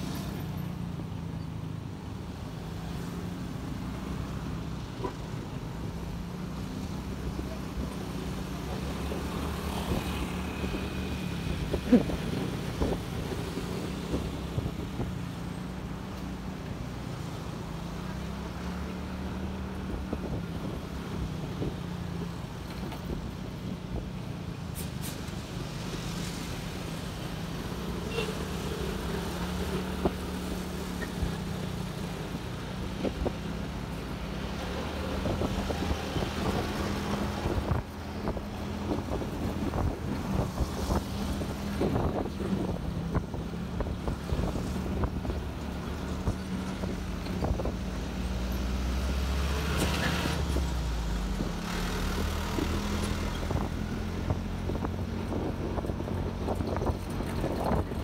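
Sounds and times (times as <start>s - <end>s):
wind rumbling on microphone: 7.7s - 15.4s, 19.2s - 27.8s, 29.0s - 58.0s.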